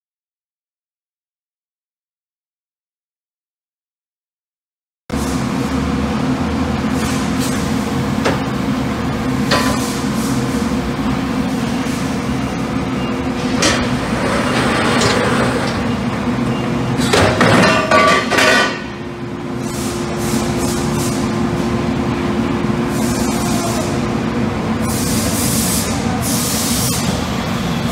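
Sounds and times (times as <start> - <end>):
steady machine hum: 5.1 - 27.9
cylinder rolling ringing clatter: 12.9 - 19.0.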